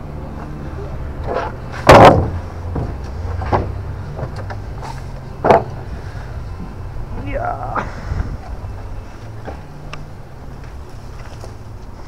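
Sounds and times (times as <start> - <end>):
wooden boards knocking on steel: 1.9 - 2.9.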